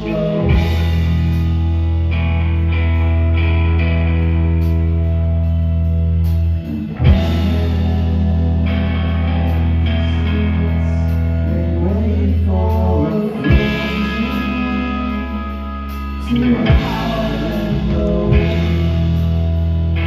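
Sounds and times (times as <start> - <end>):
man singing: 0.0 - 1.4, 6.7 - 19.5
bass guitar: 0.0 - 20.0
drums: 0.0 - 20.0
electric guitar: 0.0 - 20.0.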